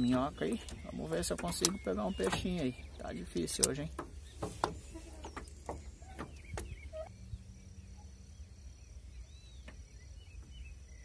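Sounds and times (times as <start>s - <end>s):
wind rumbling on microphone: 0.0s - 7.7s
faint bird calls: 0.0s - 8.4s.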